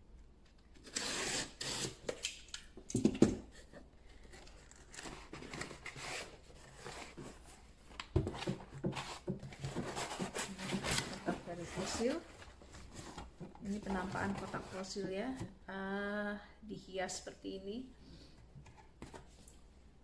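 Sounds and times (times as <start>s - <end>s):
box cutter slitting tape: 0.8s - 2.4s
cardboard scraping and knocking: 8.1s - 15.3s.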